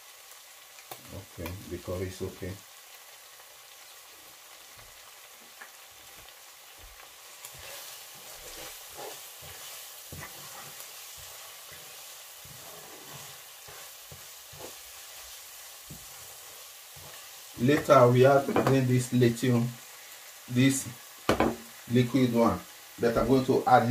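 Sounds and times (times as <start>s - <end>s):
stew sizzling in a frying pan: 0.0s - 23.9s
wooden spatula stirring and scraping: 4.7s - 19.9s.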